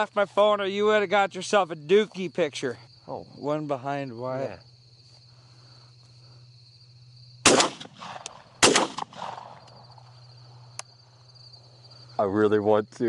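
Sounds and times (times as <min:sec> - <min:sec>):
crickets trilling: 0:00.0 - 0:13.0
shotgun shots with echo: 0:07.4 - 0:09.6.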